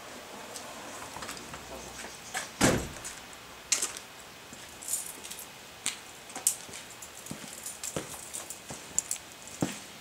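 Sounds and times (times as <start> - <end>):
truck door slamming shut: 2.6 - 3.1.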